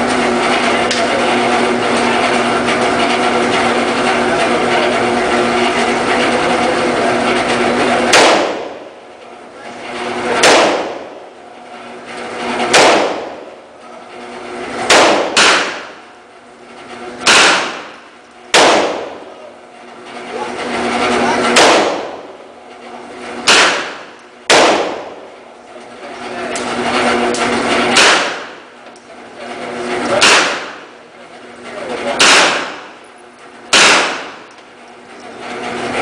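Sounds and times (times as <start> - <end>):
steady mechanical hum: 0.0 - 36.0
rifle gunshots: 8.1 - 8.8, 10.4 - 11.1, 12.6 - 13.4, 14.8 - 16.0, 17.2 - 19.2, 21.5 - 22.3, 23.4 - 25.2, 27.9 - 28.6, 30.2 - 30.8, 32.2 - 33.0, 33.7 - 34.5.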